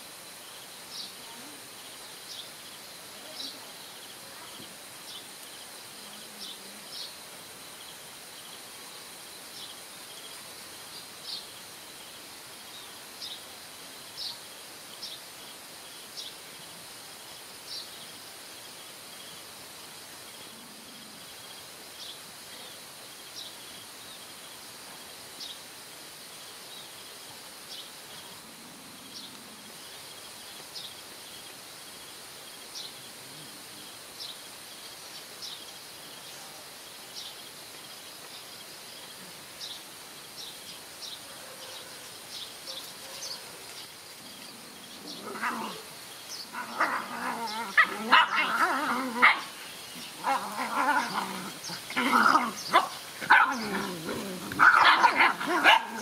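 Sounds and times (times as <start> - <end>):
puppies growling and barking: 44.4 - 56.0.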